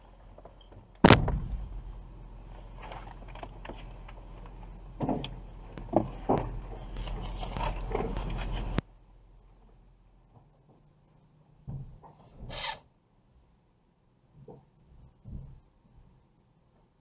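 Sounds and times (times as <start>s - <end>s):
vehicle hum: 1.0s - 8.8s
trash bags thudding: 1.1s - 2.0s.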